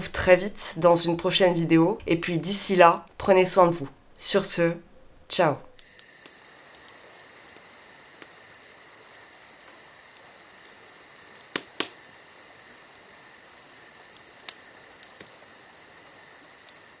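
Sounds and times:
insect chirping: 0:00.0 - 0:17.0
sharp clicks: 0:11.4 - 0:12.1.

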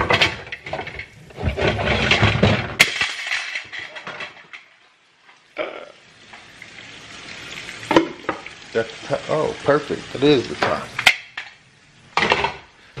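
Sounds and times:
metal pots and glass lids clattering: 0:00.0 - 0:04.7, 0:12.2 - 0:12.7
meat sizzling in hot grease: 0:04.5 - 0:13.0.

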